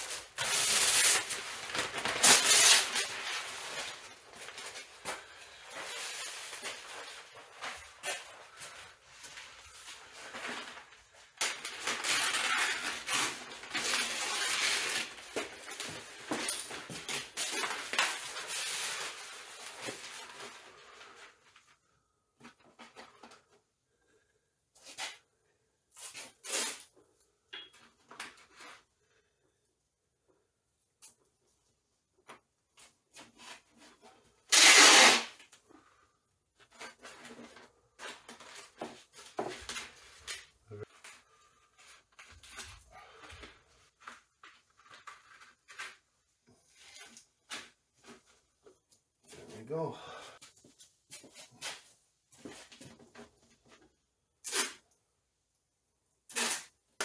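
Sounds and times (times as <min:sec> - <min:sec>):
masking tape ripped off roll: 0:00.0 - 0:03.8, 0:26.0 - 0:26.9, 0:34.5 - 0:35.5, 0:54.4 - 0:54.9, 0:56.3 - 0:57.0
masking paper crinkling: 0:00.0 - 0:21.9.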